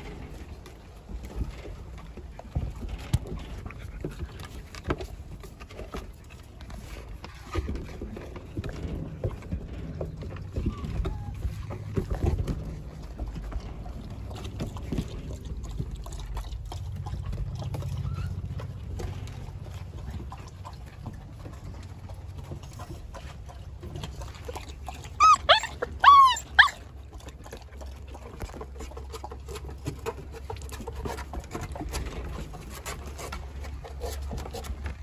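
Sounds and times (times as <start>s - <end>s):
rubber toy being chewed: 22.6s - 32.0s.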